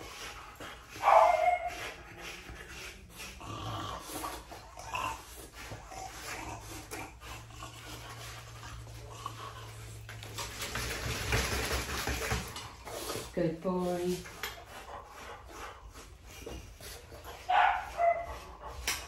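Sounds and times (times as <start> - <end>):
pumice stone rubbing on dog coat: 0.0 - 3.4, 13.0 - 14.3, 14.9 - 18.8.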